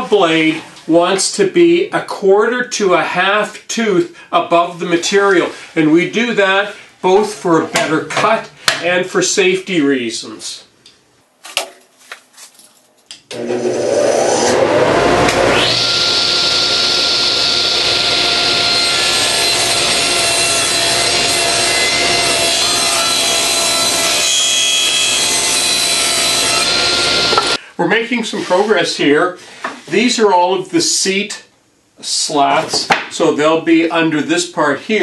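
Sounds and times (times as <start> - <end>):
table saw whining: 13.3 - 27.6.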